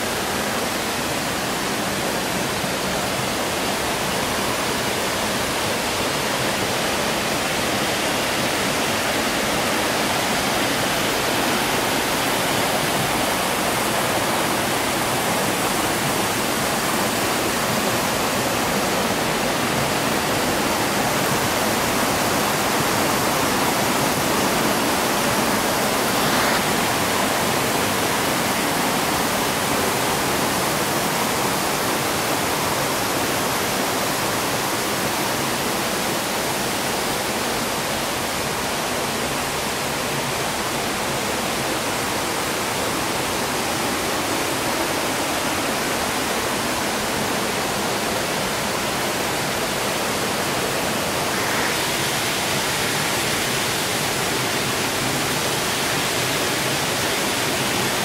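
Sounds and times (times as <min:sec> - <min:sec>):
stream flowing over rocks: 0:00.0 - 0:58.0.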